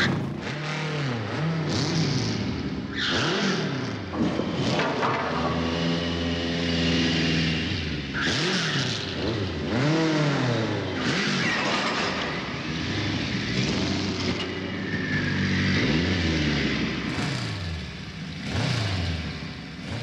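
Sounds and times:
motorbike engines revving: 0.0 - 20.0
tyre squeal: 11.0 - 17.2.

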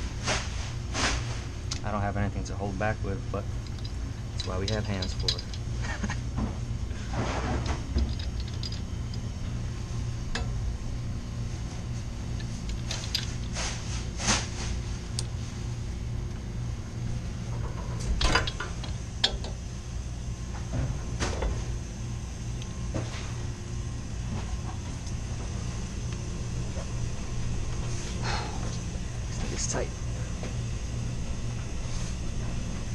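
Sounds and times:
steady low hum: 0.0 - 32.9
wrench clinking on metal: 3.6 - 5.7, 8.0 - 9.2.

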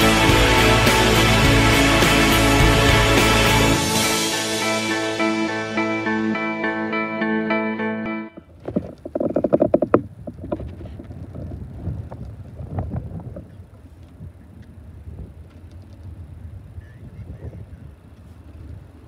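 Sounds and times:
wind buffeting microphone: 8.5 - 19.0.

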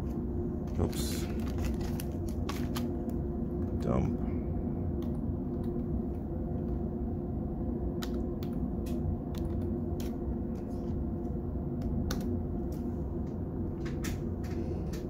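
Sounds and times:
steady low hum: 0.0 - 15.0
computer keyboard clicks: 11.8 - 12.3.

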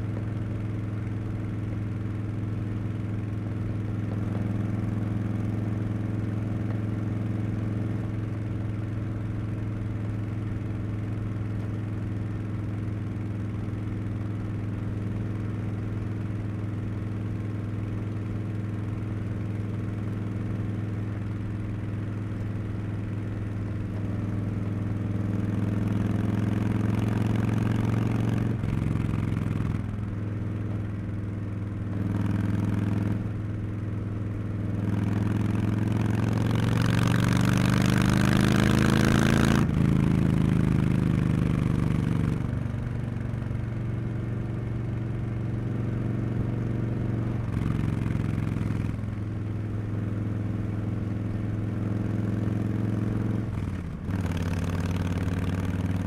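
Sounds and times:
motorcycle engine revving: 18.0 - 56.0.

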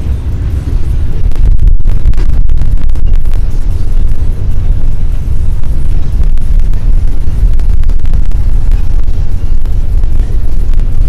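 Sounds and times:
freight train cars rumbling: 0.0 - 11.0
wind buffeting microphone: 0.0 - 11.0.

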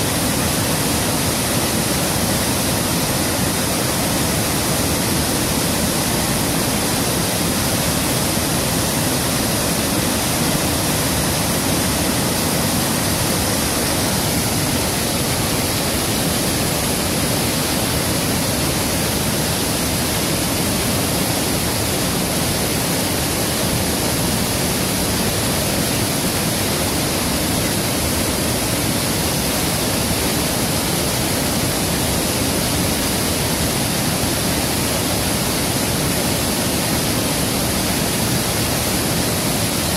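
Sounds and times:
rushing river water: 0.0 - 39.9.

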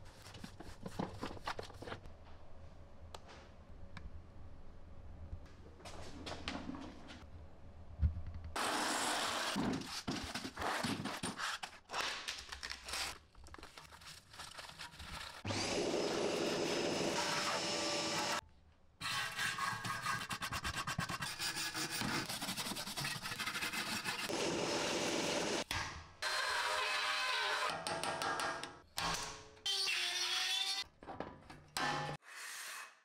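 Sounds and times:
vacuum cleaner whining: 15.5 - 18.4, 24.3 - 25.6.

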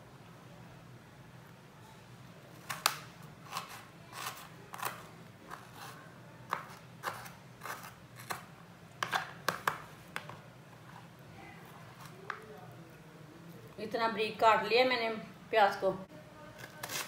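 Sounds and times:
knife chopping onion: 2.6 - 10.4, 16.6 - 17.0.

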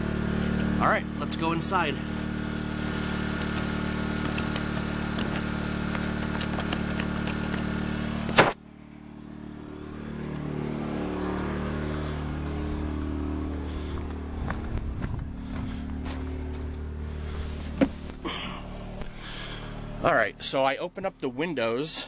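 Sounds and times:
generator engine running: 0.0 - 22.0.

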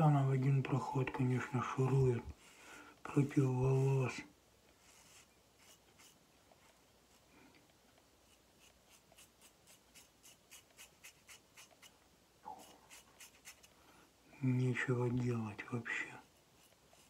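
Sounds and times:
razor scraping stubble: 8.3 - 13.8.

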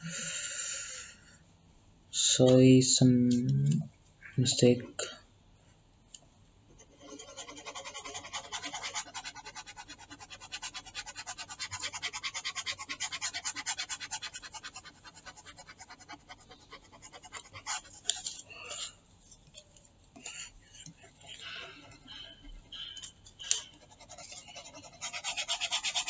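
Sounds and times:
stylus scrubbing across surface: 6.9 - 18.4, 21.2 - 26.0.

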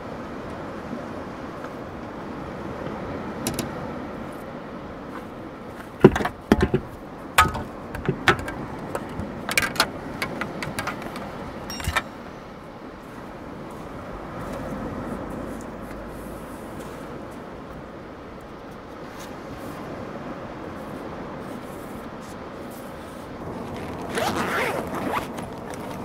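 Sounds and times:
surf: 0.0 - 26.0
wind: 0.0 - 26.0
fishing gear knocking and rattling: 3.4 - 3.8, 5.8 - 12.1.

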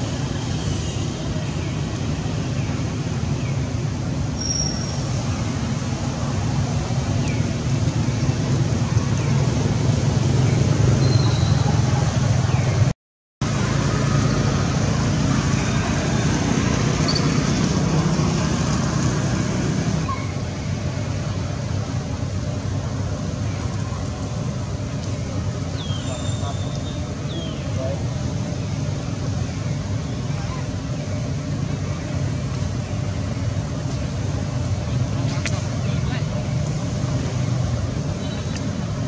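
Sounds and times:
outdoor background rumble: 0.0 - 39.0.

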